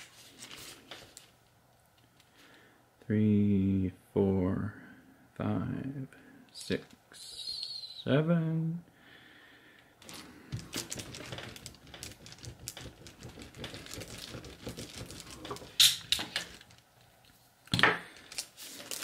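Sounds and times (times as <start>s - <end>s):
seam roller clicking and rattling: 10.0s - 16.8s.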